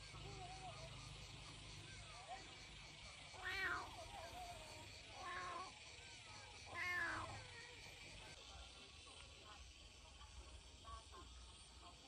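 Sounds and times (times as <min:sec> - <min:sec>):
kitten meowing: 0:06.8 - 0:07.3.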